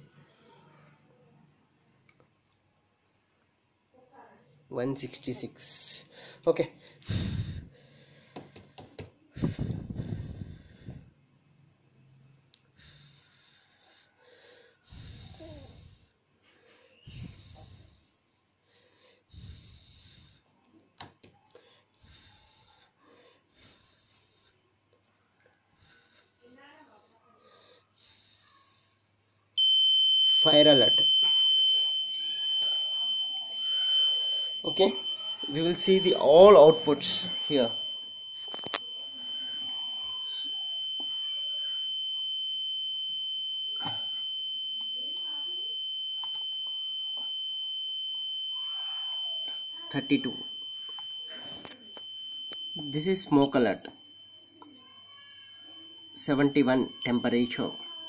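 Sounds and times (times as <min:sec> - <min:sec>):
person breathing: 0:06.1 - 0:11.2
high-pitched alarm buzzer: 0:29.6 - 0:58.0.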